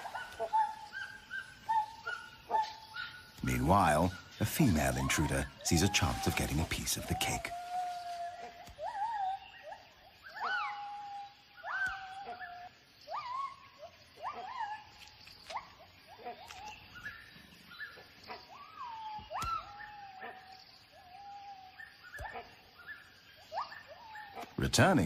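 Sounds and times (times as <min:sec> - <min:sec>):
gibbons whooping: 0:03.4 - 0:14.9, 0:18.5 - 0:22.4.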